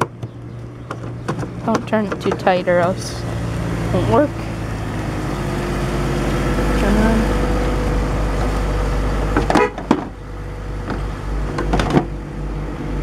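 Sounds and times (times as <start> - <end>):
plastic clicks and knocks: 0.0 - 2.5
car engine idling: 0.0 - 13.0.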